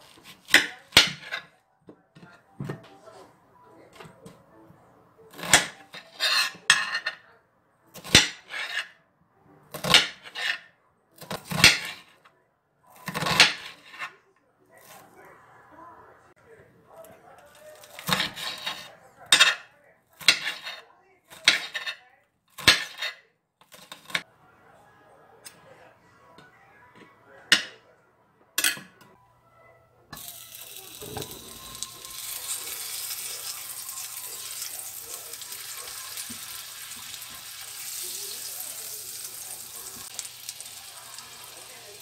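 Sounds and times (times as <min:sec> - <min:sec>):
butter sizzling in frying pan: 0:30.2 - 0:42.0.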